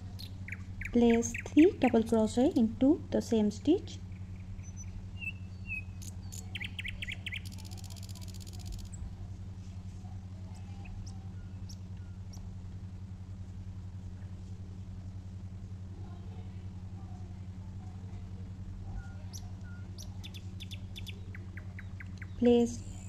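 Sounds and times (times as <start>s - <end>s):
bird trill: 0.0s - 2.7s, 4.1s - 9.0s, 10.8s - 12.4s, 19.0s - 23.0s
birds chirping: 0.0s - 9.4s, 10.4s - 12.6s, 18.9s - 23.0s
steady low hum: 0.0s - 23.0s.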